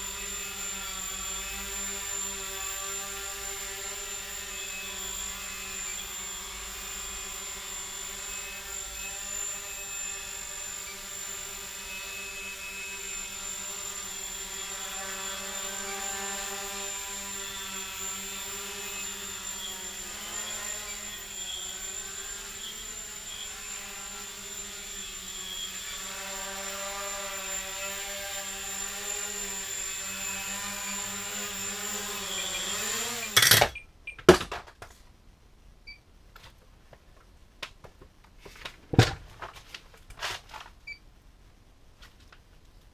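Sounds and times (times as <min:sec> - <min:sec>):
quadcopter motors buzzing: 0:00.0 - 0:33.6.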